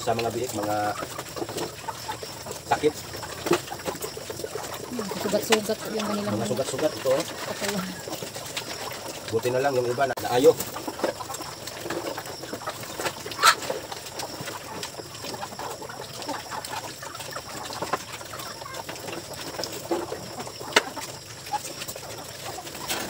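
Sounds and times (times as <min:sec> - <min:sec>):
chickens clucking: 0:00.0 - 0:23.0
piglets feeding from a dish: 0:00.0 - 0:23.0.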